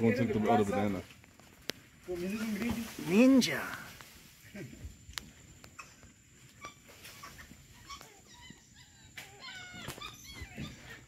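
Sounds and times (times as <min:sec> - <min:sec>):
monkeys chirping: 0:05.7 - 0:11.0.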